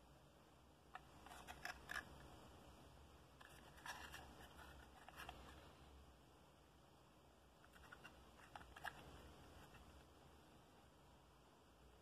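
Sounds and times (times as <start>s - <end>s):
cardboard box rustling: 3.4s - 5.5s.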